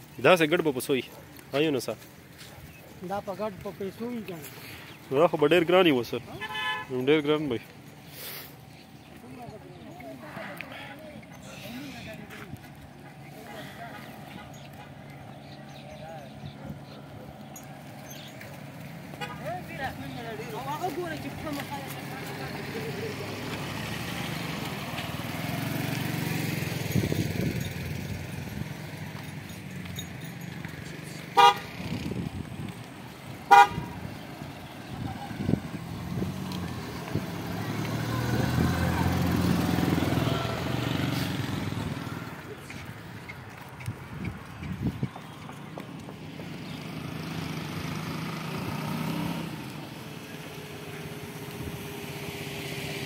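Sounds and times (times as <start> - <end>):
sheep hooves on pavement: 0.0 - 53.0
vehicle horn beeps: 6.3 - 7.0, 31.4 - 31.7, 33.5 - 34.0.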